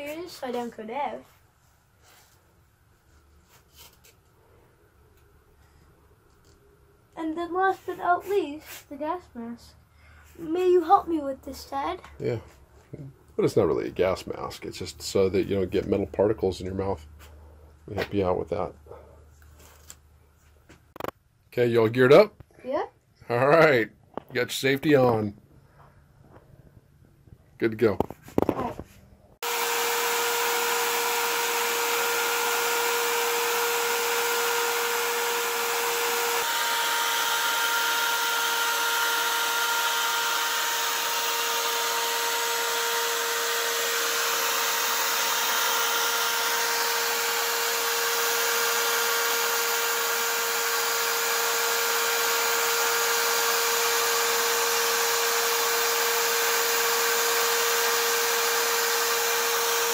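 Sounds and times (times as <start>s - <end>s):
power tool motor whine: 29.4s - 59.9s.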